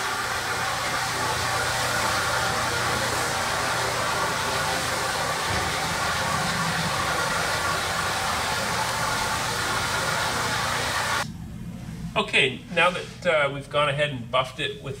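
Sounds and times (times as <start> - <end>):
floor buffer whirring: 0.0 - 11.2.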